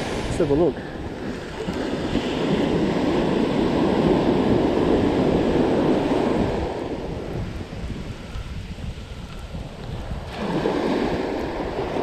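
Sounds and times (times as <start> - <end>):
ocean surf breaking on sand: 0.0 - 12.0
wind on microphone: 0.0 - 12.0.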